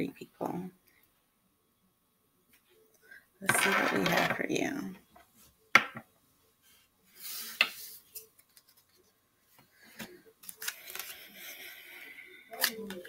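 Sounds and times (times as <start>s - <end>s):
cards tapping on a table: 5.8s - 6.0s
cards rustling: 9.9s - 13.0s.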